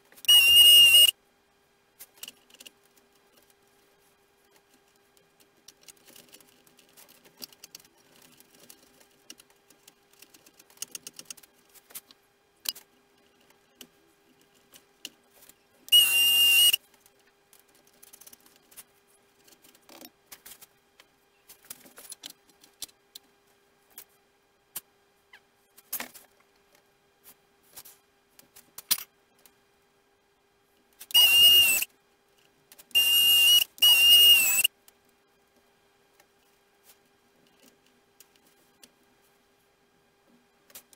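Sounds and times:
faint steady hum: 0.0s - 40.9s
short high beep: 0.3s - 1.1s, 16.0s - 16.8s
clicks taps and rattles of small parts: 2.0s - 3.6s, 4.5s - 15.6s, 16.9s - 23.3s.

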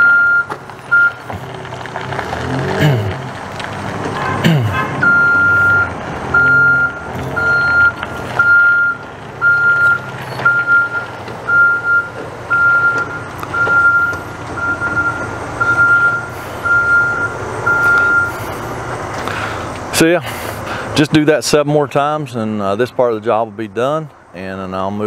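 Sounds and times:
reversing alarm beeping: 0.0s - 1.3s, 5.0s - 18.4s
vehicle engine running low: 0.0s - 25.0s.

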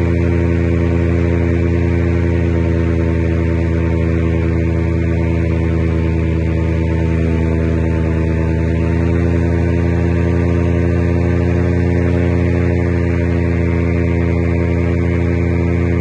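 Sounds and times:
paramotor engine droning: 0.0s - 16.0s.

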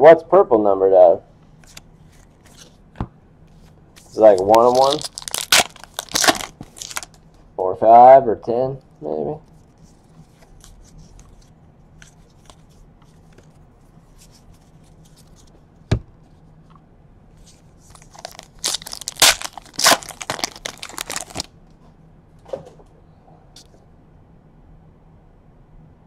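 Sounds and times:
wrapper tearing and crinkling: 4.1s - 7.2s, 17.9s - 21.5s.

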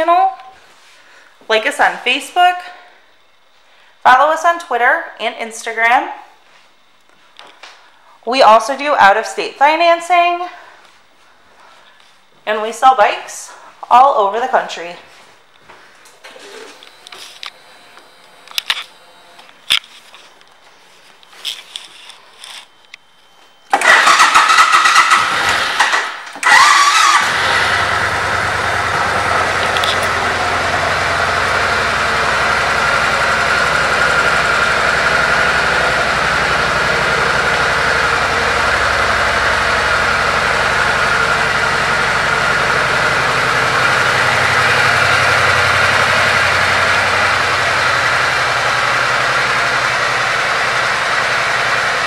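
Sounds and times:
motorcycle engine starting and idling: 23.7s - 52.0s.

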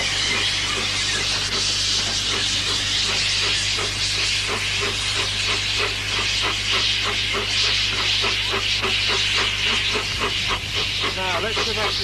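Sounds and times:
steam locomotive exhaust chuffs: 0.0s - 12.0s
steam locomotive hissing steam: 0.0s - 12.0s.

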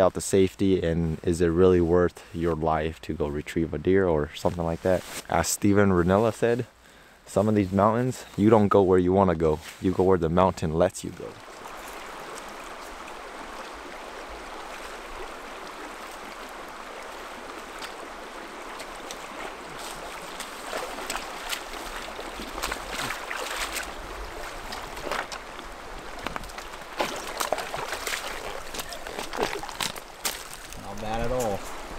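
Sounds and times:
creek running over rocks: 0.0s - 31.9s
trekking pole planted in stream: 0.0s - 31.9s
boots splashing through water: 11.4s - 31.8s.

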